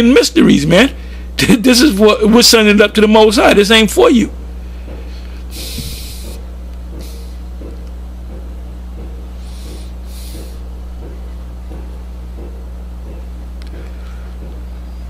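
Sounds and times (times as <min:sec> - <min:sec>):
low electrical hum: 0:00.0 - 0:15.0
breathy puffs at microphone: 0:05.5 - 0:07.4.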